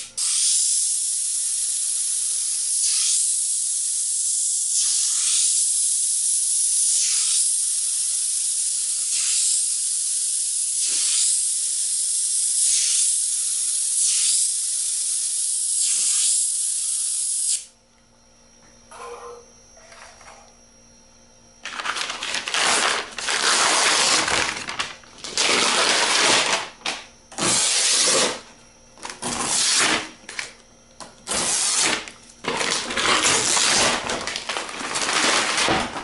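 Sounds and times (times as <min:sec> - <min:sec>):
airbrush hissing: 0:00.0 - 0:17.7.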